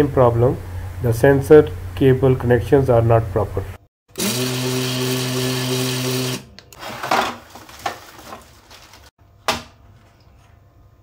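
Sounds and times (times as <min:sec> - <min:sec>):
electric motor humming: 0:04.2 - 0:06.4.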